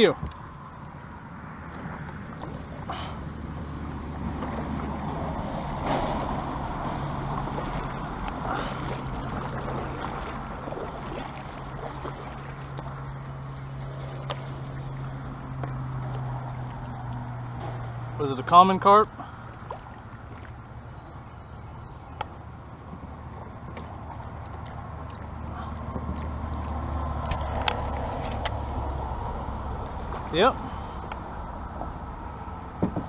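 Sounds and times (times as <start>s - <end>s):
steady low drone: 0.0s - 33.0s
water gurgling along hull: 0.0s - 33.0s
paddle splashing in water: 0.4s - 18.1s, 19.1s - 33.0s
paddle knocks: 32.8s - 33.0s.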